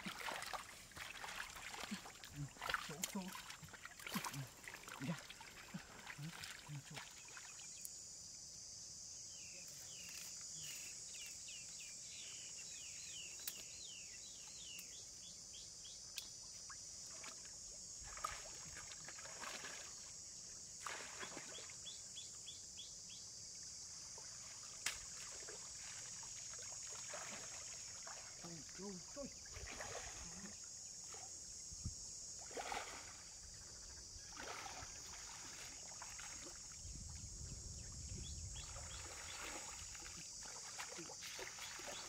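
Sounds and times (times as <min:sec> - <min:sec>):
water splashing and sloshing: 0:00.0 - 0:07.8, 0:16.5 - 0:22.2, 0:23.7 - 0:42.0.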